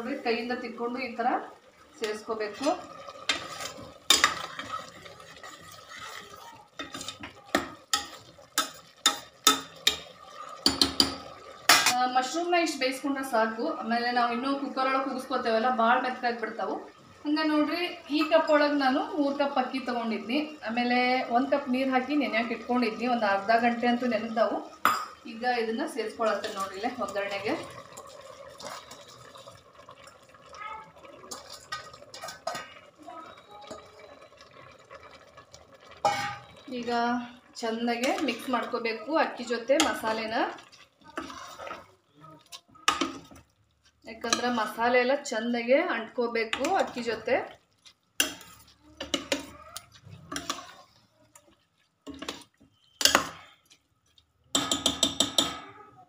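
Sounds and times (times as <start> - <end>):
rice and water pouring: 0.0 - 12.4, 13.9 - 55.1
spoon scraping metal pot: 2.0 - 12.0, 26.0 - 29.6, 31.2 - 32.9, 35.9 - 36.9, 37.7 - 45.0, 46.4 - 53.8
steel bowl clinking: 2.0 - 12.0, 23.4 - 41.9, 44.1 - 45.4, 46.3 - 47.3, 48.2 - 51.0, 52.0 - 53.6.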